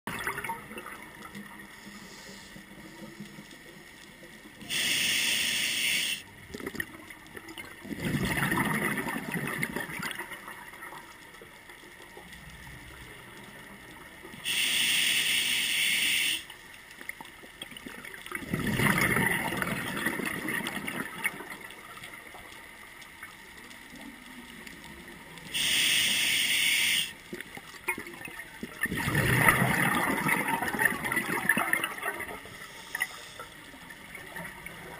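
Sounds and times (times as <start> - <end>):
hissing regulator inhale: 1.8 - 2.8, 4.7 - 6.2, 14.4 - 16.5, 25.5 - 27.2, 32.6 - 33.7
bubbling gurgling exhale: 7.8 - 10.2, 18.3 - 21.6, 28.7 - 33.4.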